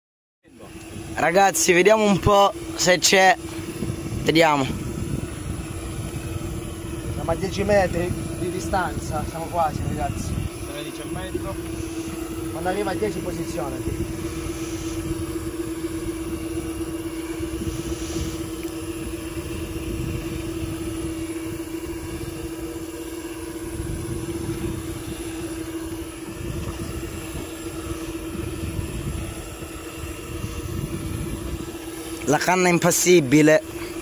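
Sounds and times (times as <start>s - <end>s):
electric fishing reel motor hum: 0.5s - 34.0s
wind rumble on microphone: 2.0s - 32.5s.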